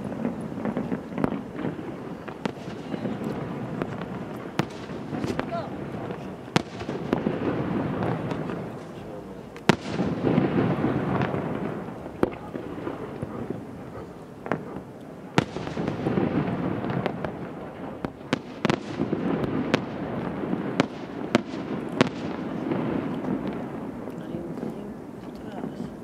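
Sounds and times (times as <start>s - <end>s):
fireworks bursting in sharp bangs: 0.0s - 26.0s.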